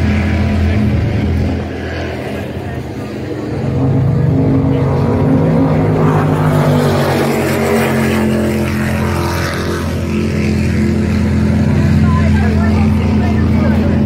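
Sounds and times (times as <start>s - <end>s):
powerboat engines droning: 0.0s - 14.0s.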